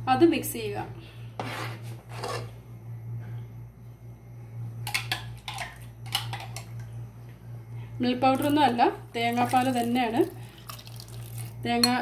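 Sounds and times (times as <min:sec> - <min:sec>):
steady low hum: 0:00.0 - 0:12.0
metal spoon scraping a pan: 0:01.4 - 0:02.5.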